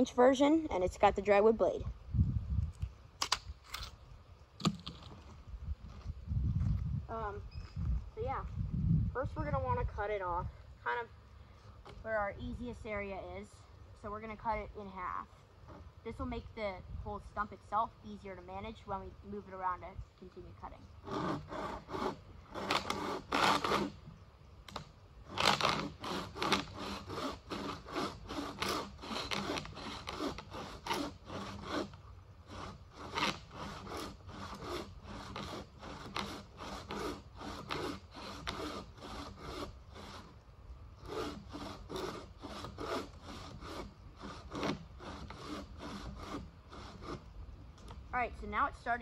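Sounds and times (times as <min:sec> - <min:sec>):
bow saw cutting wood: 0:21.0 - 0:48.0.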